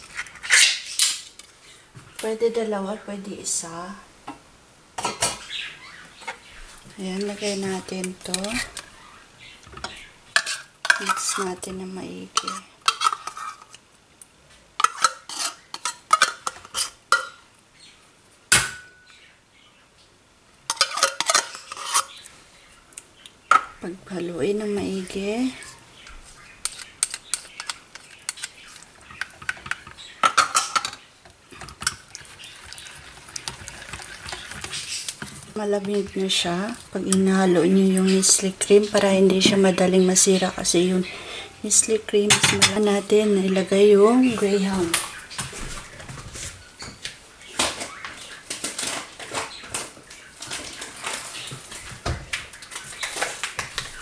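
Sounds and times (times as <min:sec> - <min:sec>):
spatula scraping a metal pot: 0:09.8 - 0:13.8, 0:14.8 - 0:17.0, 0:20.7 - 0:22.2, 0:26.6 - 0:29.9, 0:31.6 - 0:36.5
packaging rustling and crinkling: 0:47.6 - 0:54.0.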